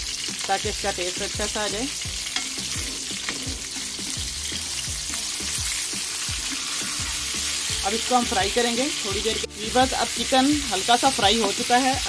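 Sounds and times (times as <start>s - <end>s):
chicken sizzling in a pot: 0.0s - 12.0s
background music with beat: 1.2s - 10.8s.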